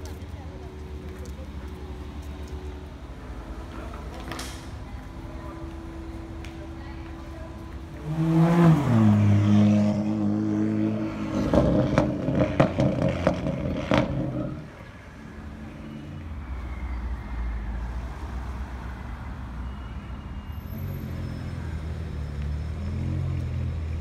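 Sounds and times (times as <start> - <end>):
car engine accelerating hard: 8.0 - 14.7
exhaust cracking and popping: 11.4 - 14.6.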